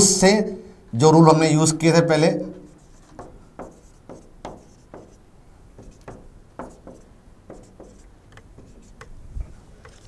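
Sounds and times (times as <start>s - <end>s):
marker drawing on whiteboard: 2.5s - 5.2s, 5.8s - 9.1s.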